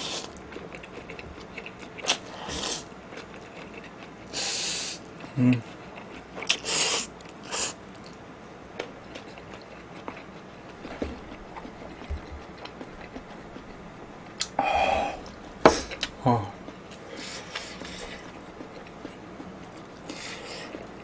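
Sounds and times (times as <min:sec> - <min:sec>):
chewing and mouth clicks: 0:00.0 - 0:14.6, 0:15.2 - 0:21.0
person slurping noodles: 0:02.1 - 0:02.9, 0:06.5 - 0:07.8.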